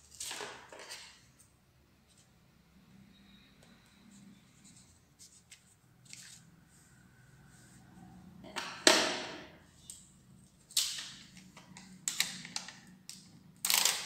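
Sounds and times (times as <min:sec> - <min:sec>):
paper rustling and scraping: 0:04.1 - 0:06.9.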